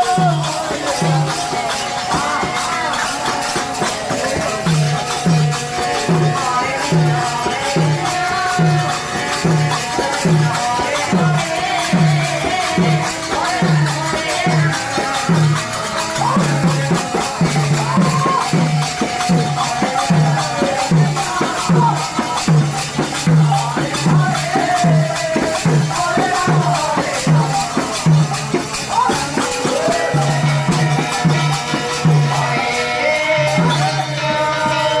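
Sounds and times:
jingling clashing percussion: 0.0s - 35.0s.

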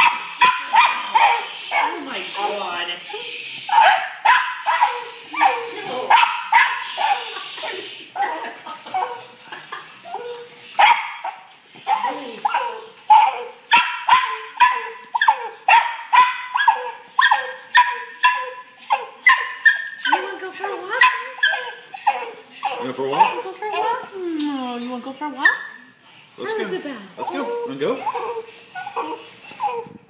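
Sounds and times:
dog barking: 0.0s - 2.1s, 3.7s - 7.4s, 10.8s - 20.3s
dog whining: 4.6s - 9.4s, 10.0s - 30.0s.

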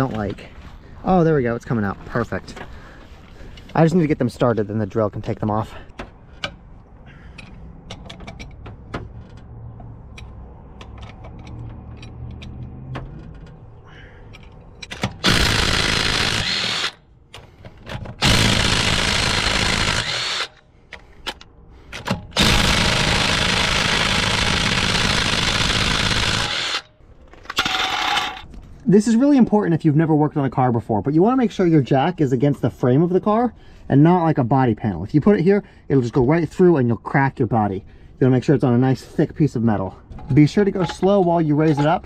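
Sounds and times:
cordless drill spinning lug nuts: 15.2s - 17.0s, 18.2s - 20.6s, 22.4s - 26.9s
tool handling: 26.5s - 28.8s, 40.1s - 42.0s.

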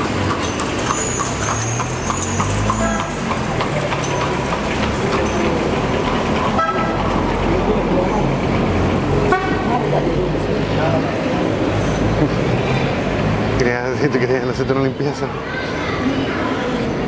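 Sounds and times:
hooves clopping: 0.0s - 7.3s
carriage wheels rattling: 0.0s - 7.5s
steady traffic noise: 0.0s - 17.0s.

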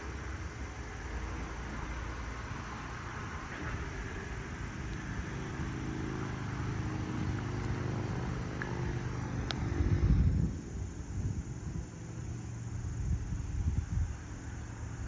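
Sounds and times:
low engine drone: 0.0s - 15.0s
wind rumble on microphone: 1.6s - 15.0s.

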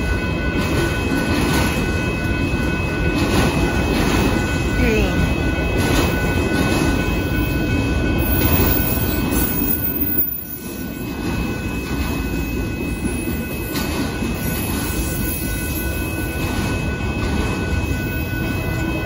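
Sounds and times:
train wheels rumbling on rails: 0.0s - 19.0s.

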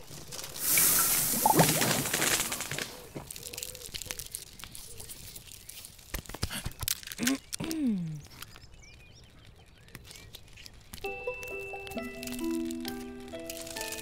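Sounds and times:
music notes: 11.0s - 14.0s.

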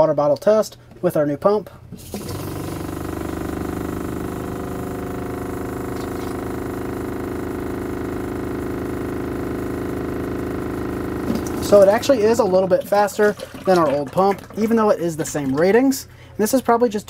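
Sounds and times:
water pump humming: 1.9s - 17.0s
water running into plastic bottle: 2.0s - 3.9s, 11.2s - 16.0s.

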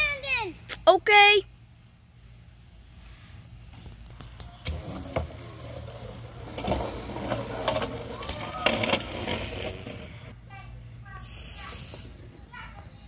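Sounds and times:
plastic toy scraping on wood: 4.7s - 10.4s.

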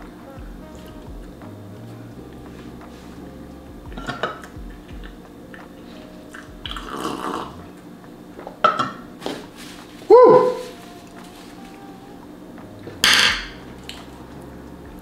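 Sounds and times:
tableware knocking: 8.6s - 9.4s, 13.0s - 13.6s.

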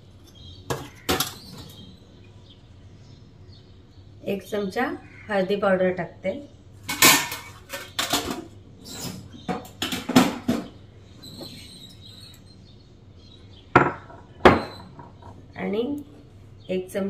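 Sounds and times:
utensils clinking on steel containers: 6.9s - 8.5s.

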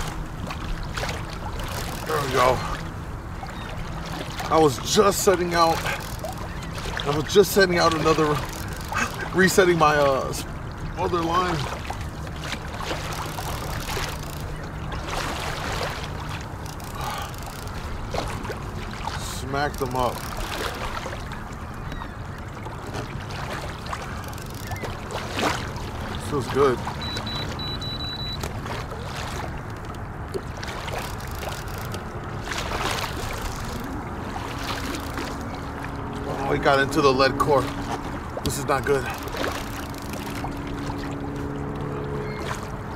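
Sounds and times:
water splashing along kayak hull: 0.0s - 42.9s.

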